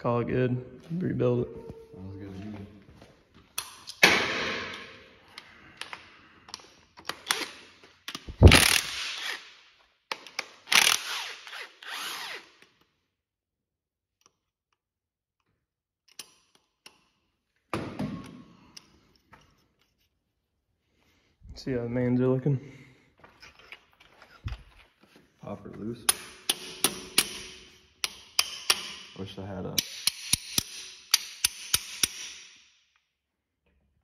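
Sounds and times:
socket wrench on metal bolts: 26.1s - 29.2s, 29.8s - 32.5s.

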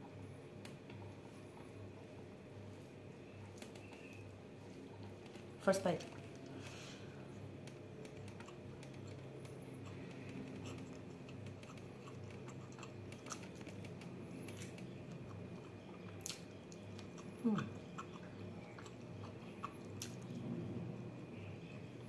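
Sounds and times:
low steady hum: 0.0s - 22.0s
chewing mouth clicks: 8.0s - 20.4s.

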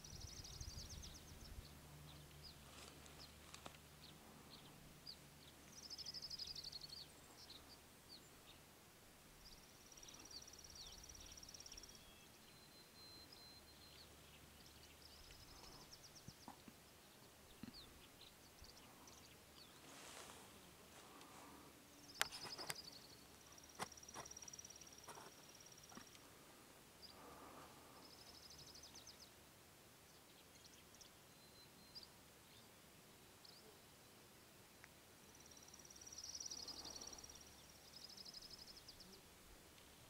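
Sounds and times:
faint low hum: 0.0s - 40.0s
songbird trills: 9.4s - 20.0s, 21.0s - 26.4s, 35.2s - 39.3s.

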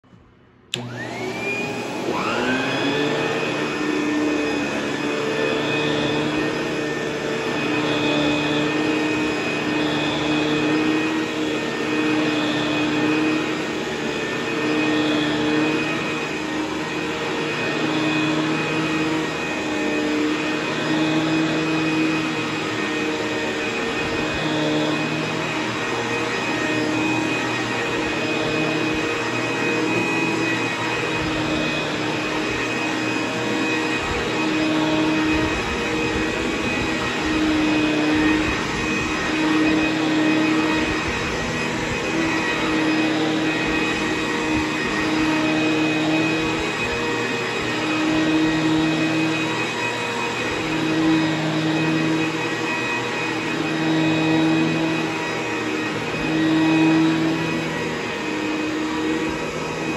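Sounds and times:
vacuum cleaner motor whine: 0.0s - 59.9s.

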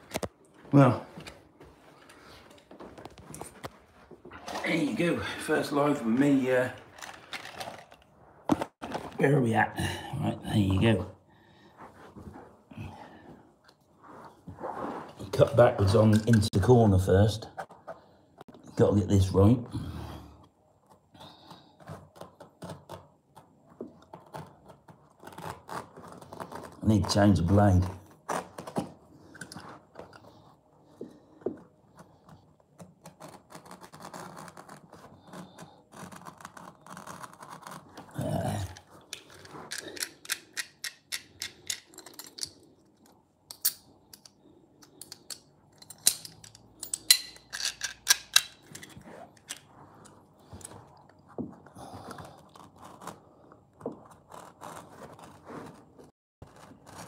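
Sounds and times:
knife rasping through carpet: 31.9s - 38.2s, 52.1s - 57.0s.

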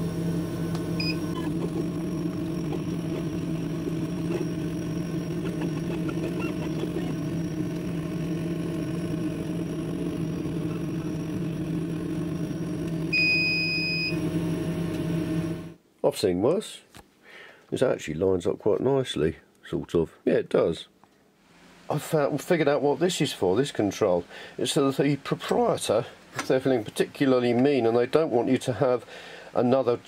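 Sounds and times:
laser cutter fan humming: 0.0s - 15.8s
longer beep: 13.1s - 14.2s
short beep: 13.1s - 14.2s.

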